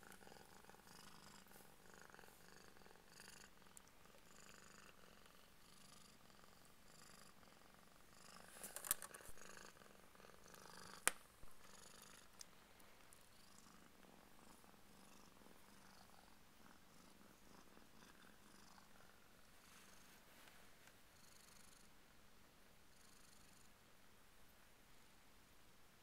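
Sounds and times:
cat purring: 0.0s - 23.9s.

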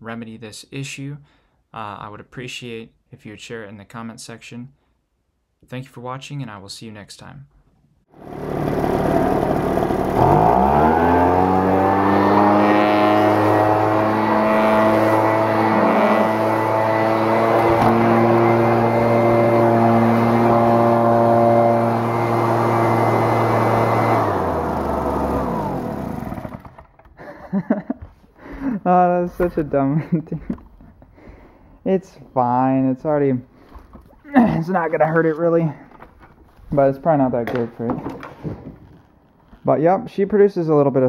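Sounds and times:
leaf blower engine revving: 8.1s - 26.9s.

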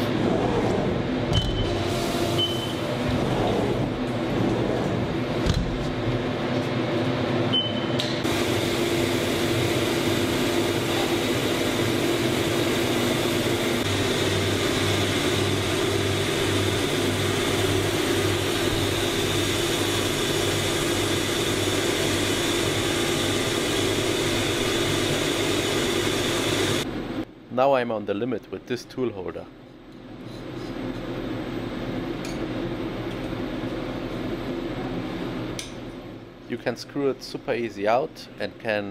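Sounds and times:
cutting machine whirring and whining: 8.2s - 26.9s.

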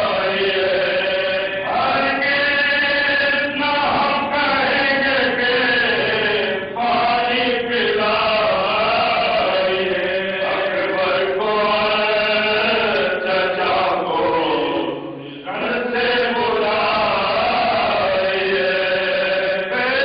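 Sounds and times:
men's voices chanting: 0.0s - 20.0s.

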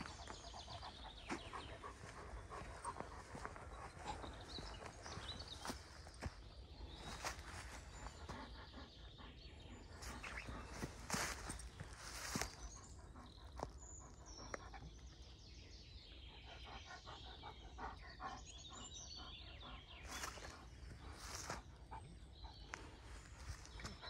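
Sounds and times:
dog panting: 0.0s - 15.1s, 16.4s - 24.0s
faint woodland birdsong: 0.0s - 24.0s
footsteps rustling dry leaves: 10.7s - 12.6s.

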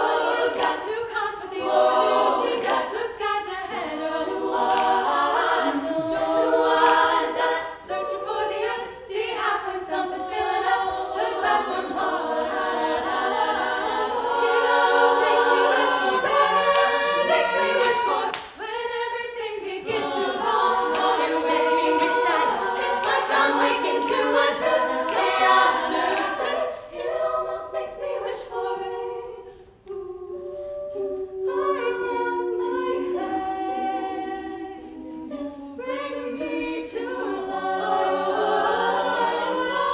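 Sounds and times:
women singing a cappella: 0.0s - 39.9s.

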